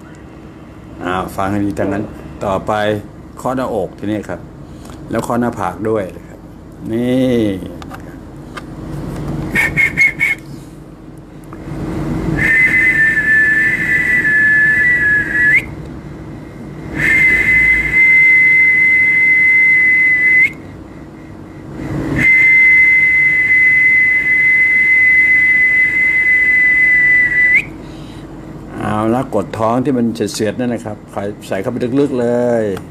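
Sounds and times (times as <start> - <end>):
person whistling: 9.5 - 10.6, 12.4 - 15.7, 16.9 - 20.7, 22.1 - 27.8.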